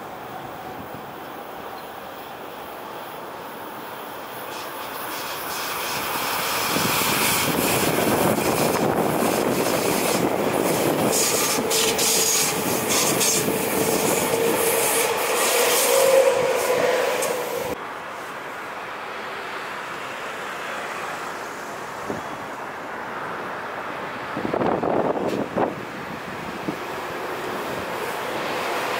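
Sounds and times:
train wheel and rail noise: 0.0 - 28.9.

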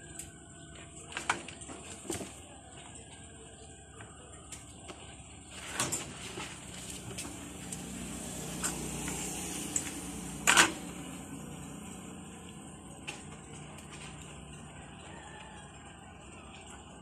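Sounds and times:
kittens scratching in litter: 5.5 - 10.0.

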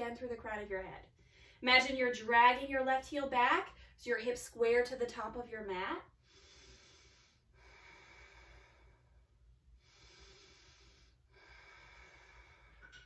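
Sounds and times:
woman breathing slowly: 1.1 - 1.6, 6.1 - 13.0.

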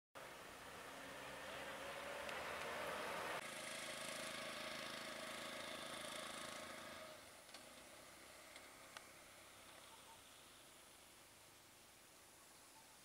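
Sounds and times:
vehicle engine idling: 3.4 - 11.2.

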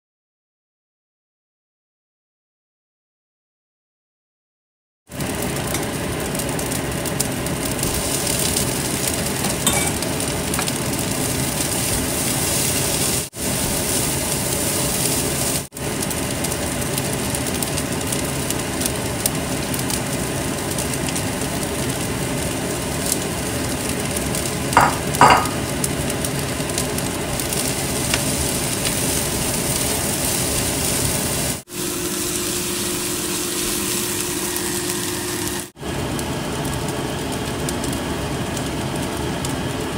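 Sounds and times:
food sizzling in a wok: 5.1 - 39.9
spatula stirring: 7.8 - 15.6.

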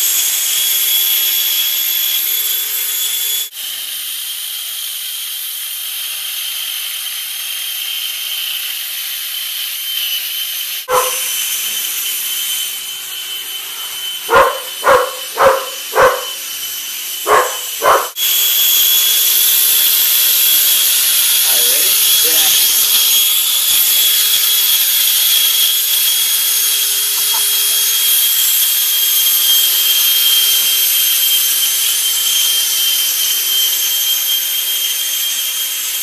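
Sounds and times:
electric fan whining: 10.8 - 36.0
dog barking: 10.9 - 11.3, 14.3 - 16.4, 17.2 - 18.2, 22.2 - 22.6, 27.2 - 27.6.

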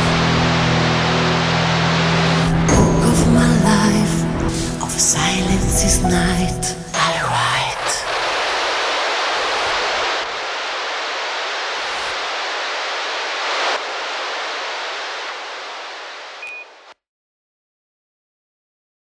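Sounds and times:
steady rushing noise: 0.0 - 4.6, 7.2 - 17.0.

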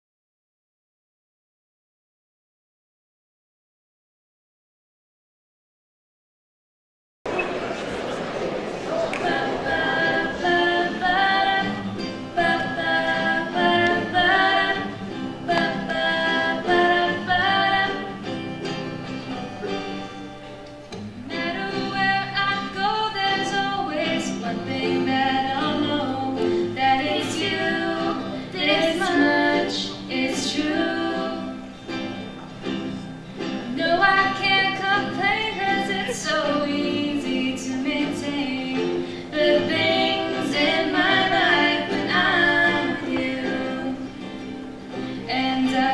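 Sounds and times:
acoustic guitar plucked: 7.3 - 45.9
ukulele: 7.3 - 45.9
women singing: 9.2 - 18.3, 21.2 - 31.8, 33.6 - 45.9.

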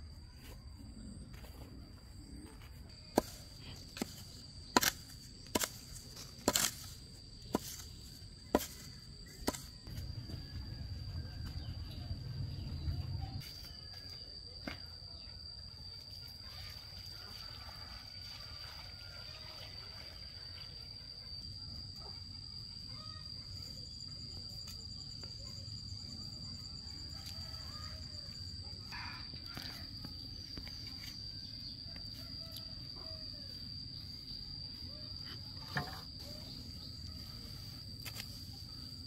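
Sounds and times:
high insect drone: 0.0 - 39.0.

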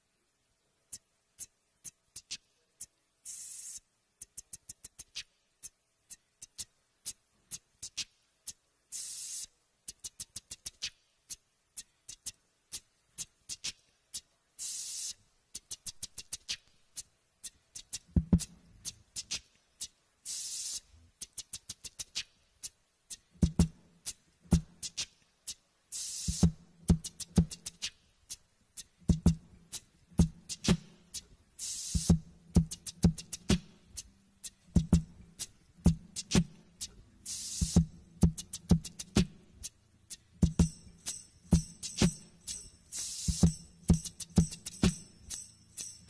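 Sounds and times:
beatboxing into a microphone: 0.9 - 45.0
beatboxed clicks: 0.9 - 46.0
hissing snare-like burst: 3.3 - 5.3, 8.9 - 11.0, 14.6 - 16.7, 20.2 - 21.0, 24.5 - 28.0, 30.5 - 36.7, 37.3 - 39.4, 40.5 - 43.6
deep kick-drum-like thumps: 29.1 - 29.5, 34.7 - 35.2, 35.8 - 36.6, 37.7 - 39.4, 40.4 - 42.2.

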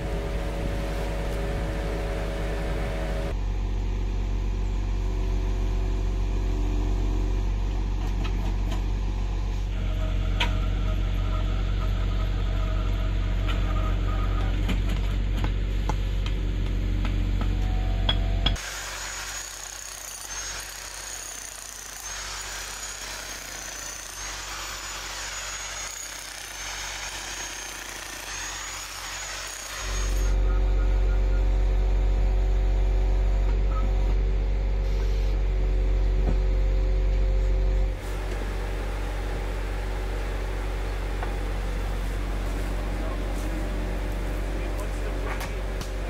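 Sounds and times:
truck engine droning: 0.0 - 18.6, 30.4 - 46.0.

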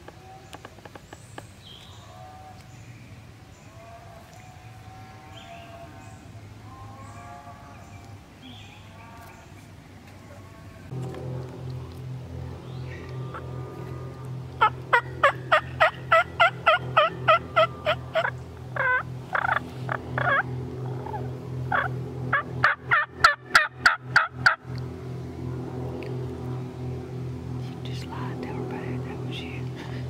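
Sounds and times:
wild turkey calling: 12.7 - 24.6.

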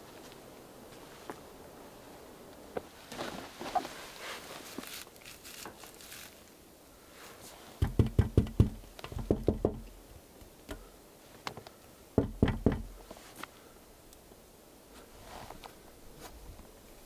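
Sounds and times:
knuckles knocking on logs: 7.8 - 9.9, 12.2 - 13.0.

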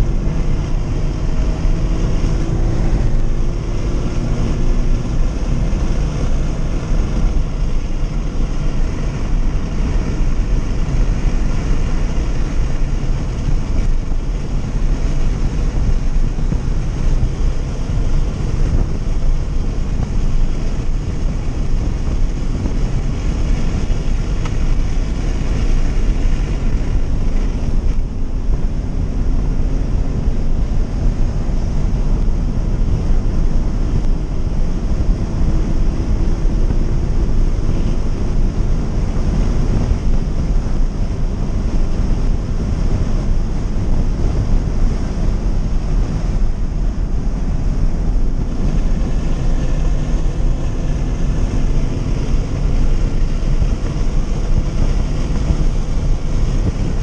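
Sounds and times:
car engine under load: 0.0 - 57.0
road and wind noise: 0.0 - 57.0.

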